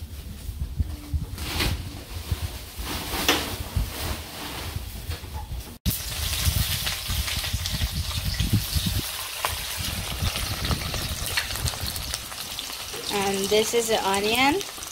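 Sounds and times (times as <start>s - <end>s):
hot oil hissing in a wok: 5.9s - 14.9s.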